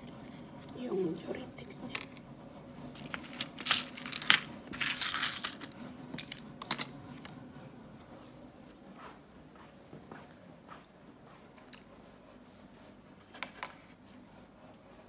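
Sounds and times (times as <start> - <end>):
pills rustling: 3.0 - 6.9.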